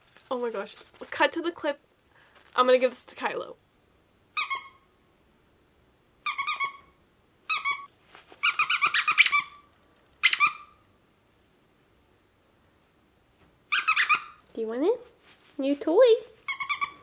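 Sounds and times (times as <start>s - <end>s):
dog toy squeaking: 4.4s - 4.8s, 6.2s - 10.8s, 13.7s - 14.4s, 16.4s - 17.0s.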